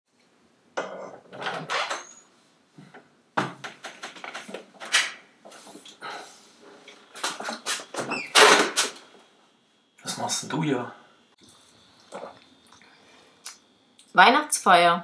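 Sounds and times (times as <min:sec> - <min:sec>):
knocks and clattering: 0:00.8 - 0:02.0, 0:02.8 - 0:05.2.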